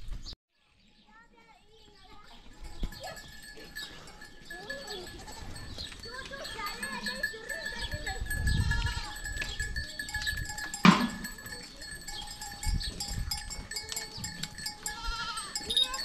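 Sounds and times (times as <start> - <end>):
collar bells ringing: 2.1 - 16.0
goats bleating: 3.2 - 9.5, 13.8 - 16.0.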